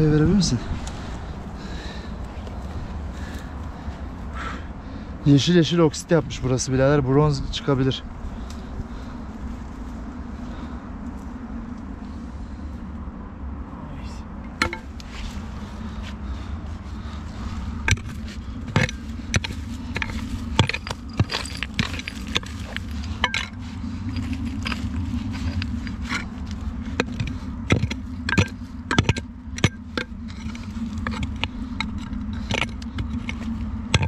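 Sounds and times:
hoe blade clinking on rocks: 14.6s - 14.8s, 17.8s - 34.0s
hoe chopping stony soil: 17.8s - 34.0s.

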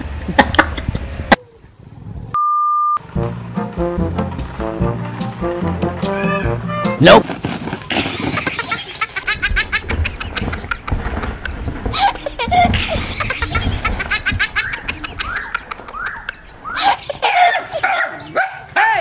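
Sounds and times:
person laughing: 0.3s - 1.0s, 7.9s - 18.0s
dog barking: 17.3s - 18.7s.

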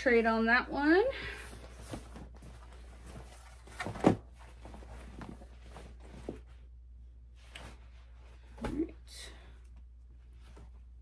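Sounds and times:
fabric rustling: 1.3s - 8.9s.

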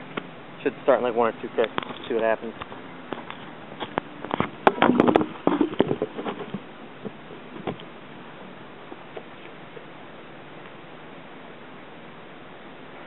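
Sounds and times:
steady outdoor hiss: 0.0s - 13.0s
camera handling knocks and rustles: 2.6s - 6.6s.

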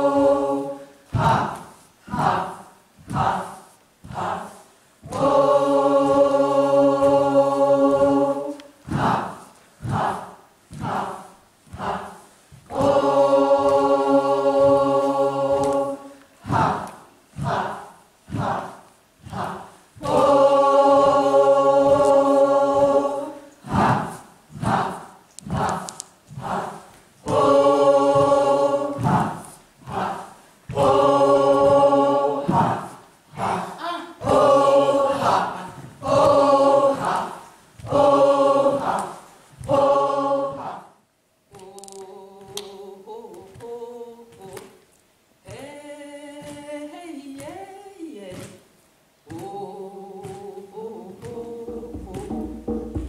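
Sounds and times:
group chanting rhythmic calls: 0.0s - 53.0s.

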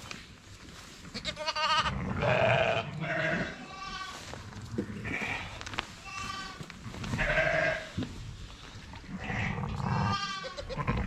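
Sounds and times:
sheep bleating: 1.2s - 8.0s, 9.1s - 11.0s
straw rustling: 3.0s - 9.4s.

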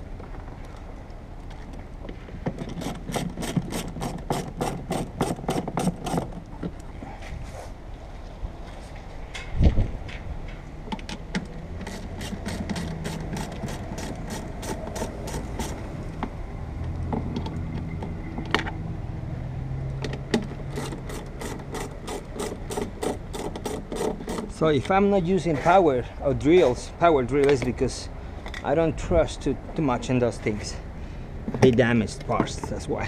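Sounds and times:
ratchet wrench clicking: 11.8s - 15.8s, 20.7s - 24.5s.

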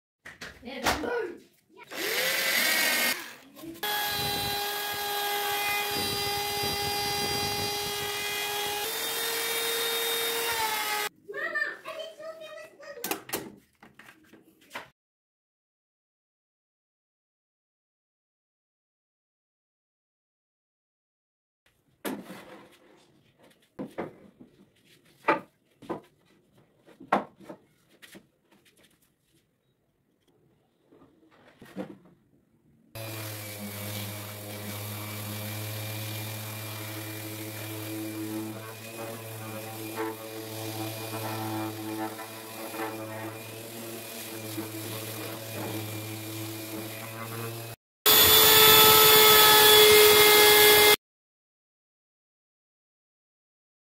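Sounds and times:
router whining: 1.9s - 11.1s, 33.0s - 51.0s
faint rubbing and shuffling: 22.4s - 29.7s
wooden knocks and clunks: 26.8s - 27.7s.

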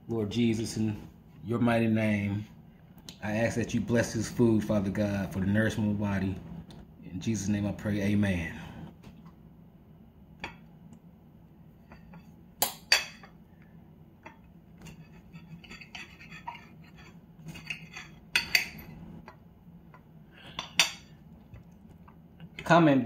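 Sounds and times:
cutlery clinking on a plate: 14.2s - 19.0s.

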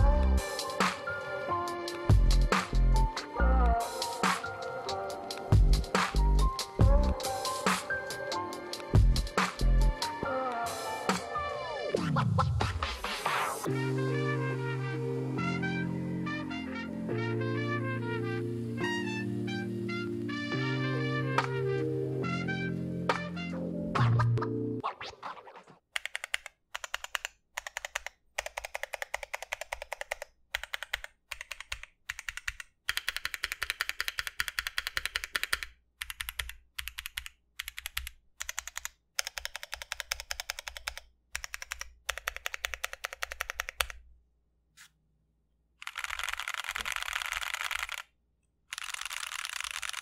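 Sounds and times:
keyboard keys clicking: 3.6s - 9.7s, 26.0s - 44.0s, 45.8s - 48.1s, 48.7s - 50.0s.

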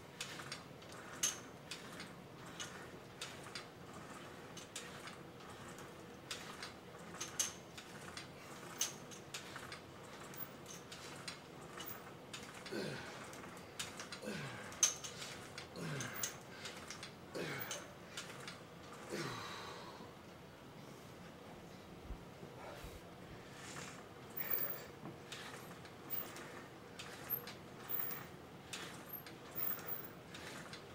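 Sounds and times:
gym equipment clicks and clinks: 0.2s - 19.2s, 23.6s - 30.9s
weightlifter grunting: 15.8s - 16.3s.

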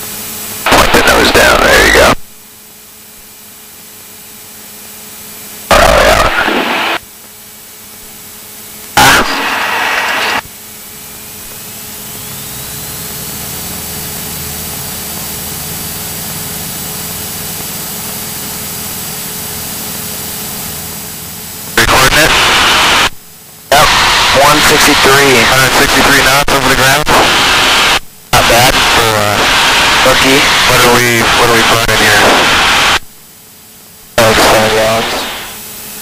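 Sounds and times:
small plane engine: 3.1s - 27.0s.

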